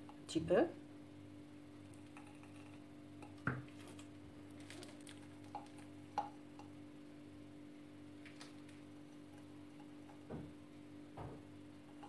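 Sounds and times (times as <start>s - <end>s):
faint hum: 0.0s - 12.0s
whipped cream squishing from piping bag: 3.6s - 6.1s.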